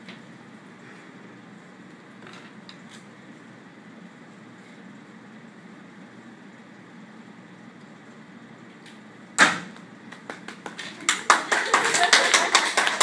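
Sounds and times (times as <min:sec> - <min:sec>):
hand claps and applause: 0:10.1 - 0:13.0.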